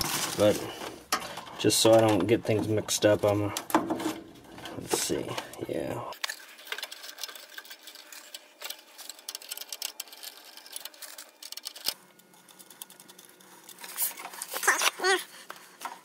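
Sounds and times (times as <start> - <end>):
wiring connectors clicking and rustling: 0.0 - 14.6.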